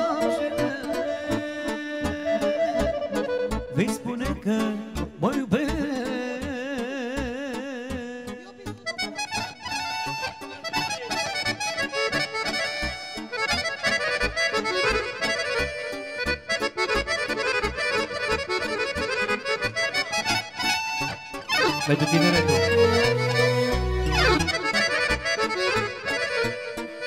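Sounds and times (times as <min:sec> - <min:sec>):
accordion playing fast runs: 0:09.1 - 0:27.0
low bass beat: 0:22.2 - 0:24.7.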